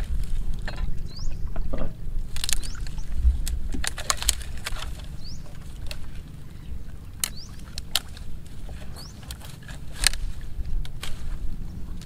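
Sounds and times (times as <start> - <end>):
rustling branches: 0.0 - 12.0
bird chirps: 1.0 - 1.8, 5.1 - 5.6, 6.4 - 7.7
twigs snapping: 2.3 - 6.3, 7.1 - 11.4.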